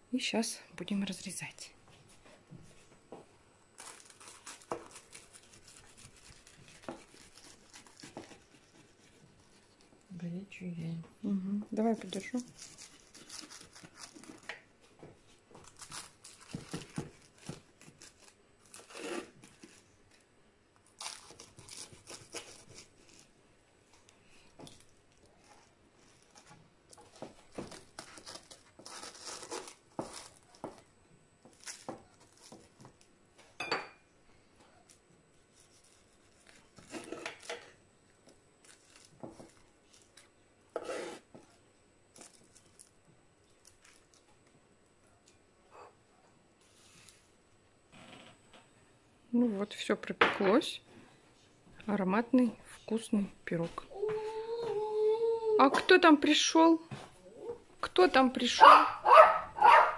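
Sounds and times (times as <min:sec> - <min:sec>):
knife cutting crisp pastry: 0:03.8 - 0:09.6, 0:15.6 - 0:19.8, 0:21.0 - 0:23.3, 0:26.3 - 0:30.8, 0:38.7 - 0:41.4.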